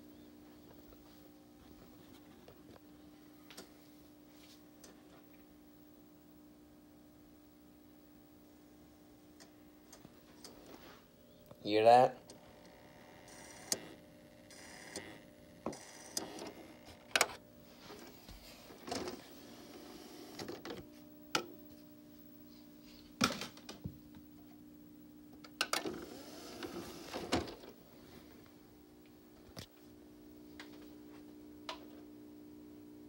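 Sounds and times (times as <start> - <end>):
disc drive motor hum: 12.2 - 33.0.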